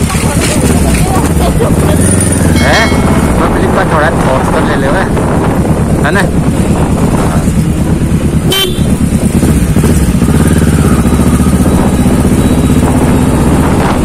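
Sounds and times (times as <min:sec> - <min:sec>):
motorcycle engine running: 0:00.0 - 0:14.0
horn toot: 0:08.5 - 0:09.0.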